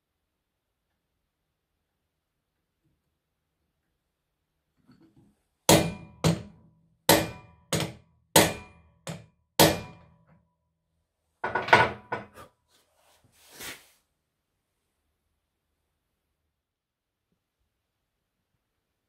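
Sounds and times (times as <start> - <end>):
hammer striking metal drift: 5.7 - 8.9.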